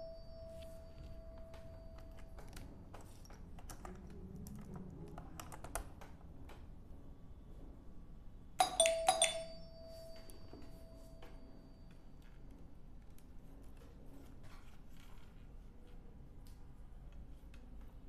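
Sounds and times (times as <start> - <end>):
clicks and taps handling wires: 1.4 - 6.7
metallic strikes with bell-like ringing: 8.6 - 11.2.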